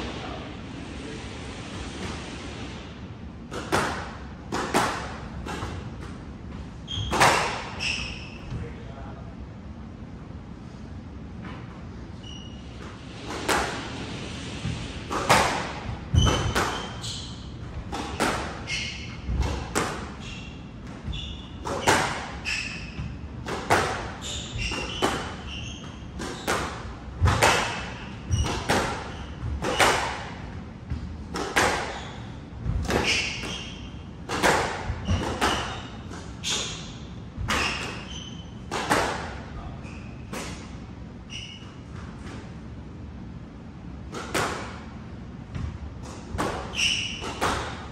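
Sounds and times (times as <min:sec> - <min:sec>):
shoes squeaking on wooden floor: 0:06.8 - 0:08.7, 0:12.1 - 0:13.1, 0:14.6 - 0:30.2, 0:30.9 - 0:40.6, 0:46.4 - 0:47.8
squash ball cracking off rackets: 0:34.2 - 0:36.5.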